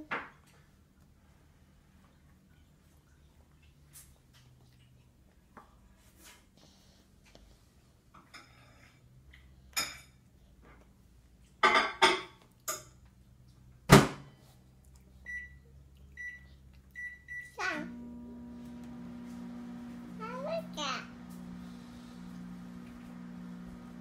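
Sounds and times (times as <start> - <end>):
microwave oven humming: 15.3 - 24.0.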